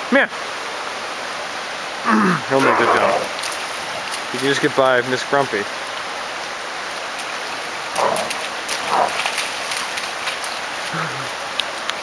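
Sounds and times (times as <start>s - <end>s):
flowing water rushing: 0.0s - 12.0s
dog grunting: 2.1s - 4.1s, 10.9s - 11.4s
dogs splashing in water: 2.6s - 4.8s, 7.0s - 11.6s.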